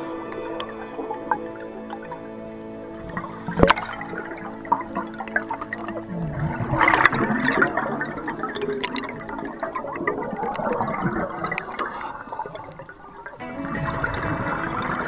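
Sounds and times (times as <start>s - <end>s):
air bubbling underwater: 3.0s - 15.0s.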